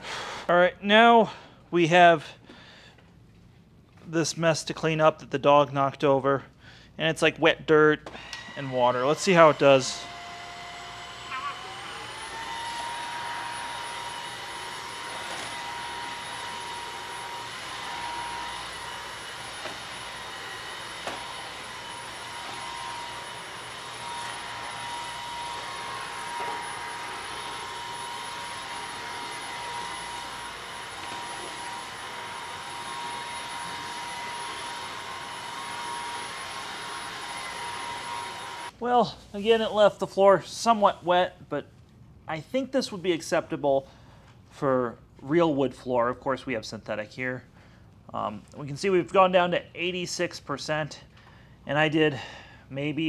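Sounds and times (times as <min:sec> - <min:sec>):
floor scrubber motor whine: 0:08.1 - 0:38.8.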